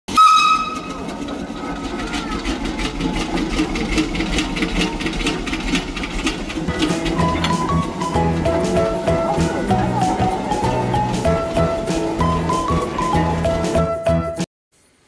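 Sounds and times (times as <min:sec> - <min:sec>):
short whistle-like tone: 0:00.1 - 0:00.9
machinery humming and clattering: 0:00.1 - 0:13.9.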